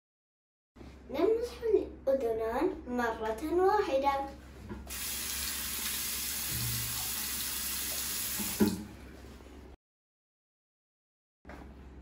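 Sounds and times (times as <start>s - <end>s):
water running from tap into sink: 4.9s - 8.9s
tap shutting off knock: 8.4s - 8.9s.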